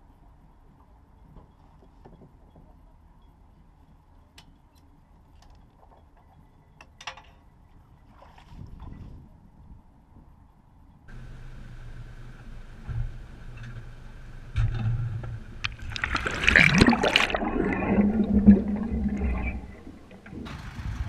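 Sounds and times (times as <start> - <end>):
low steady hum: 0.0 - 21.0
water sloshing and splashing: 14.6 - 20.5.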